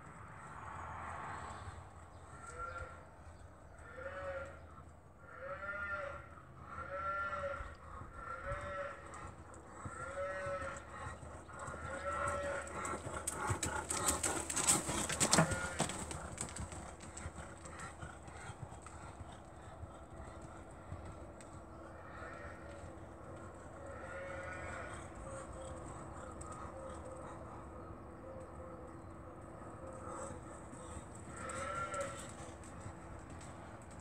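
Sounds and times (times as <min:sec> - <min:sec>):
horse hooves thudding: 0:10.6 - 0:21.9, 0:30.6 - 0:34.0.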